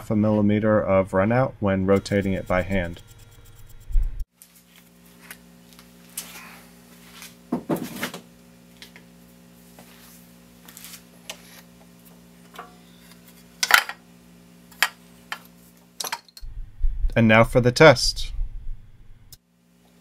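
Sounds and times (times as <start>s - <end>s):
steady low hum: 0.0s - 7.5s, 16.4s - 19.4s.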